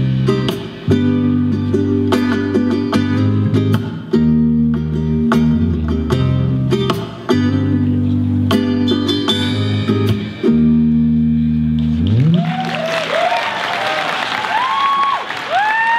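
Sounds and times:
rock band playing: 0.0s - 12.9s
audience applause: 12.2s - 15.9s
audience whistling: 12.2s - 15.9s.

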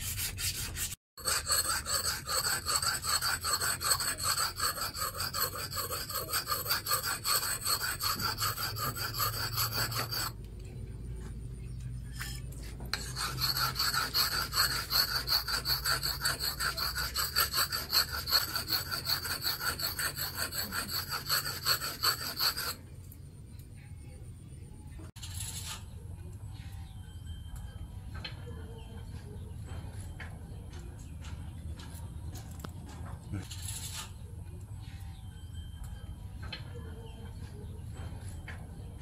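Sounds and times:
axe honed on whetstone: 0.0s - 10.4s, 11.9s - 22.8s.

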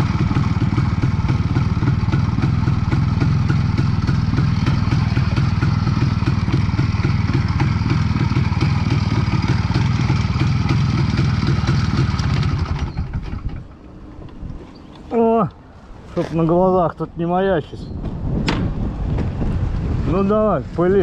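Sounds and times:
two-stroke engine running: 0.0s - 13.9s.

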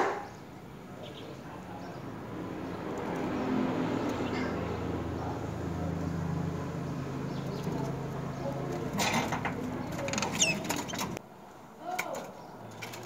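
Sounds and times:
chick squeaking: 9.8s - 11.2s.

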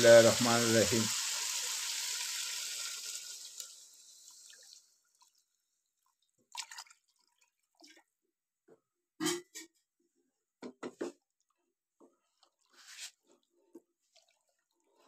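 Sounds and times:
water poured into hot pan: 0.0s - 5.4s.

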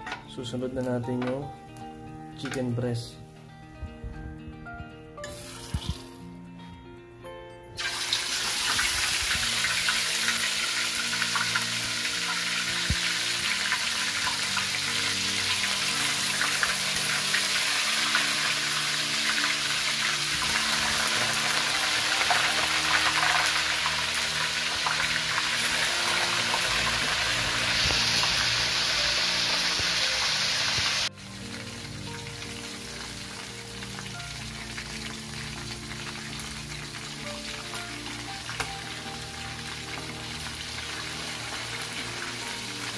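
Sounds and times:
chicken sizzling in hot oil: 5.3s - 6.2s, 7.8s - 42.9s.

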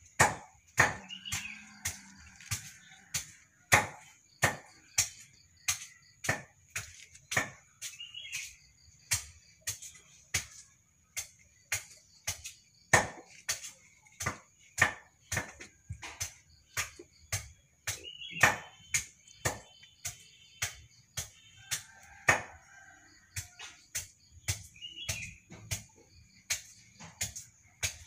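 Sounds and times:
sharp irregular knocks: 0.1s - 8.4s, 9.0s - 22.6s.

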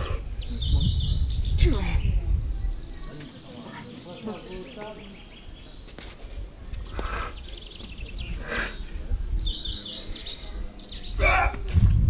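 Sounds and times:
wind on microphone: 0.0s - 3.2s, 6.2s - 12.0s
small birds chirping: 0.0s - 11.8s.

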